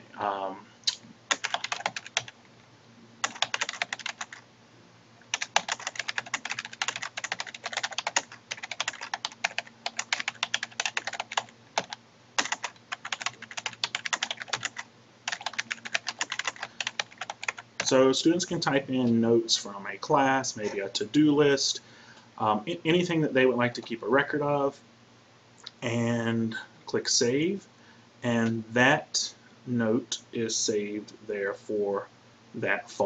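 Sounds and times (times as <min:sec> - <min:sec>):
keyboard typing clicks: 0:03.2 - 0:04.4, 0:05.4 - 0:17.9.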